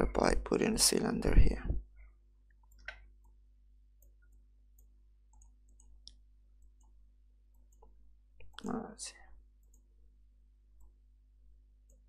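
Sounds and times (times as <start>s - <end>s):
computer mouse clicks: 2.5s - 3.4s, 4.0s - 8.7s, 9.6s - 9.9s.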